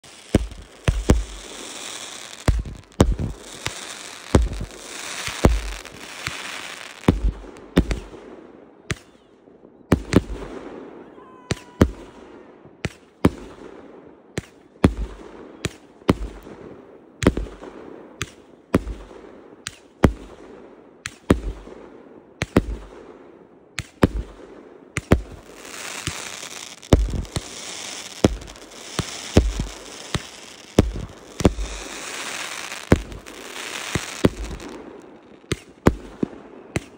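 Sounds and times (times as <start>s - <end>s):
crackling hiss of sparkling stars: 0.0s - 7.6s, 25.0s - 35.9s
fireworks bangs: 0.0s - 8.3s, 23.8s - 36.9s.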